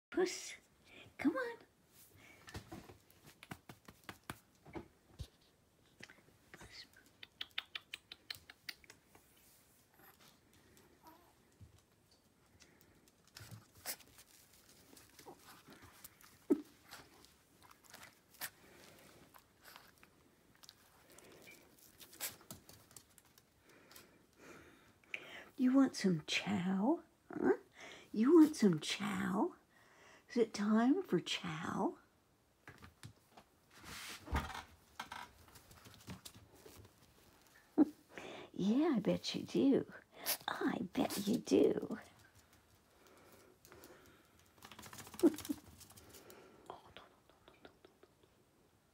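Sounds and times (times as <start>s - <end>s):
puppy claws clicking on tile: 6.9s - 9.3s.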